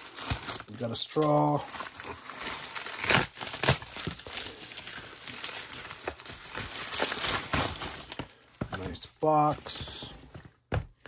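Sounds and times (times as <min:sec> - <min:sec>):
packaging crinkling: 0:00.0 - 0:08.6.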